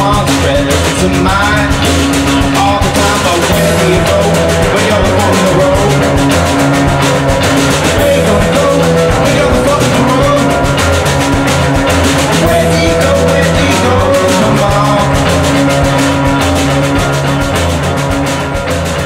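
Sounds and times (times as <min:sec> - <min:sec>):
rock song with drum beat: 0:00.0 - 0:19.0.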